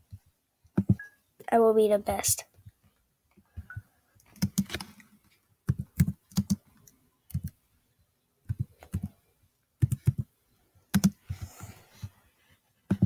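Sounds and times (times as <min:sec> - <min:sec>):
computer keyboard typing: 0:00.8 - 0:01.1, 0:03.6 - 0:04.9, 0:05.7 - 0:07.6, 0:08.5 - 0:09.2, 0:09.8 - 0:10.3, 0:10.9 - 0:11.4.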